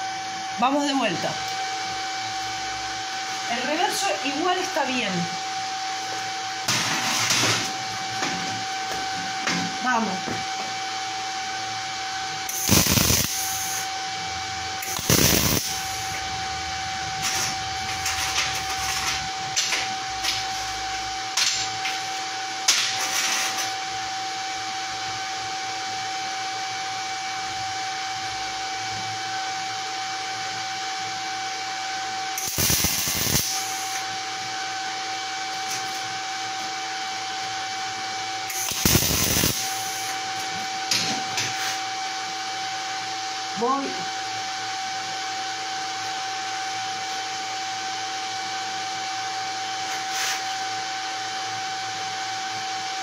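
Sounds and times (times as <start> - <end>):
welding arc crackling: 12.4 - 13.9, 14.6 - 20.8, 32.4 - 34.1, 38.4 - 40.6.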